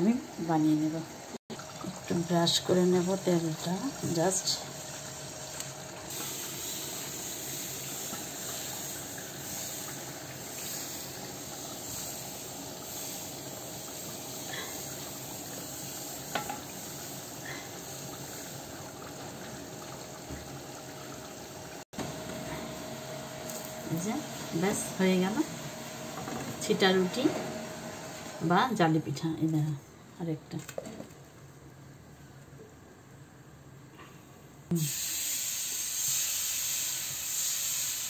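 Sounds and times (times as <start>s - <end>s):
batter sizzling in frying pan: 2.1s - 27.1s, 34.7s - 38.0s.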